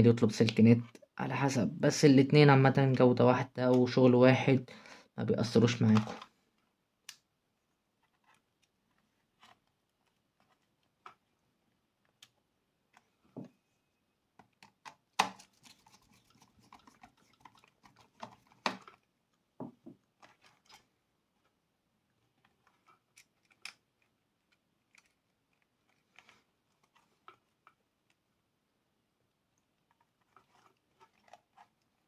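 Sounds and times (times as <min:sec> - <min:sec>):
rustling: 0:07.6 - 0:14.0, 0:15.3 - 0:28.2, 0:29.5 - 0:32.0.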